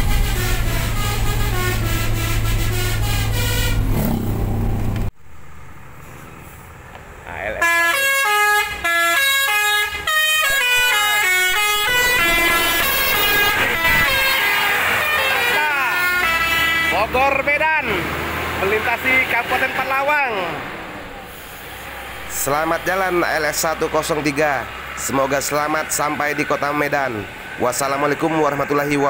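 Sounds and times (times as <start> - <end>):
multi-tone air horn tune: 0.0 - 4.0, 7.6 - 17.2
low engine drone: 0.0 - 6.7.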